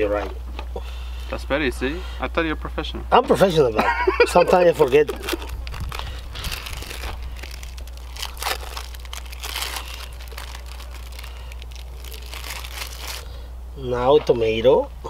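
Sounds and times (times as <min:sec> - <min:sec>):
plastic wrapper crinkling: 0:04.6 - 0:13.3.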